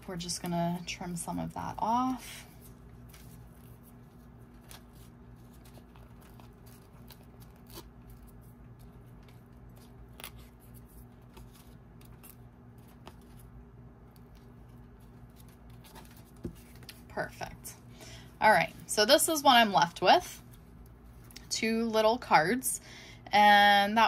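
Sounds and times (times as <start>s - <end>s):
paper crackling and tearing: 1.9s - 17.1s.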